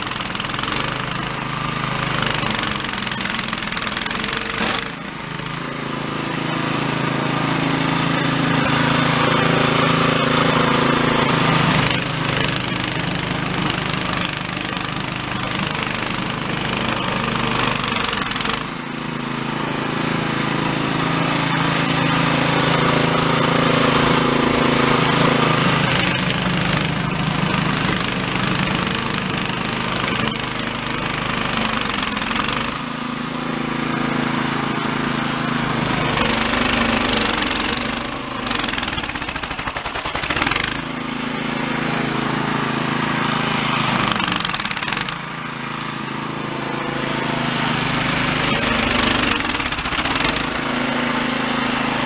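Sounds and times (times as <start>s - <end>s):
snowblower running under load: 0.0s - 52.0s.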